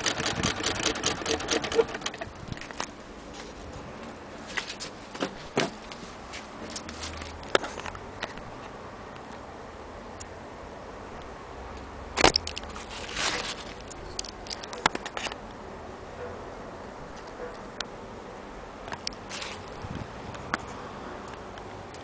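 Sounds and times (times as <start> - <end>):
short rustle: 12.6 - 14.8, 19.2 - 20.0.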